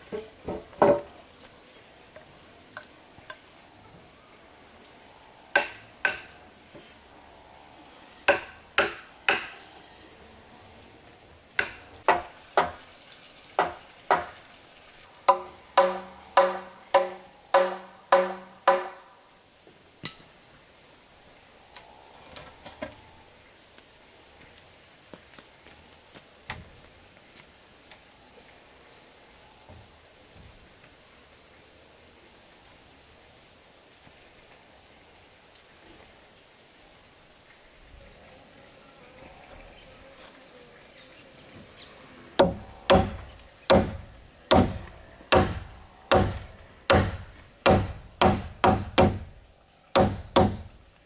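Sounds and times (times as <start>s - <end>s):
high insect drone: 0.0s - 51.0s
hammer striking timber: 5.6s - 6.3s, 8.3s - 9.6s, 11.6s - 12.8s, 13.6s - 14.3s, 15.3s - 19.0s, 42.4s - 49.3s, 49.9s - 50.8s.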